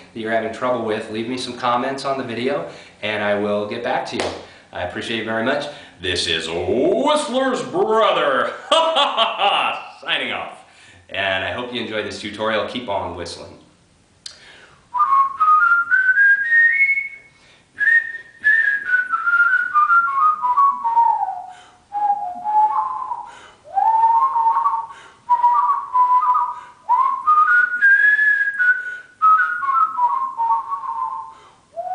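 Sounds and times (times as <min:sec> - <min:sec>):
man whistling a tune: 0:14.9 - 0:31.9.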